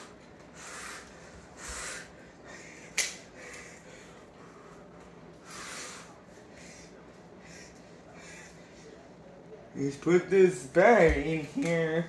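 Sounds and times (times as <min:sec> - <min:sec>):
noisy breaths through the nose: 0:00.0 - 0:09.1.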